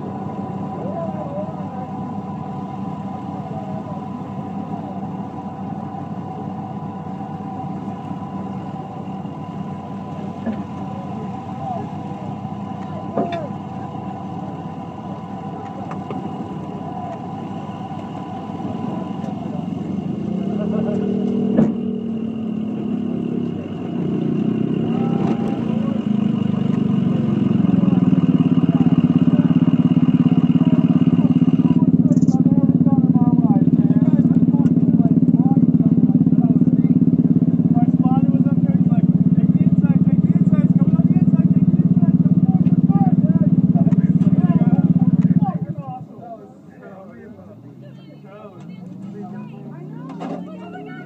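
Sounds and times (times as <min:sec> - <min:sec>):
buggy engine idling: 0:00.0 - 0:51.0
pickup truck pulling up: 0:00.0 - 0:51.0.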